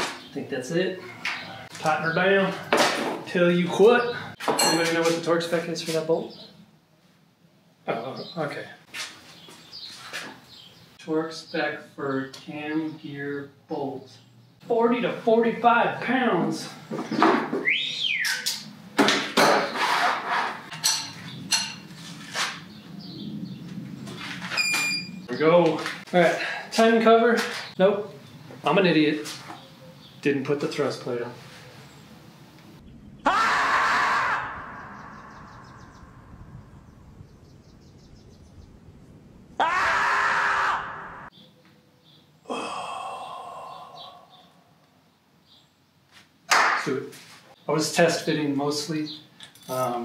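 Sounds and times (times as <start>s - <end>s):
marmot screaming: 33.2s - 36.2s, 39.6s - 41.3s.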